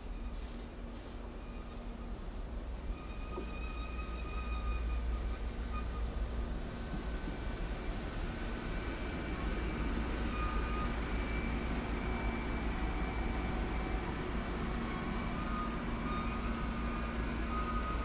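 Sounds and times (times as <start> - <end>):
faint thin squeaks: 0.0 - 2.0, 2.8 - 6.2
train rumbling: 0.0 - 18.0.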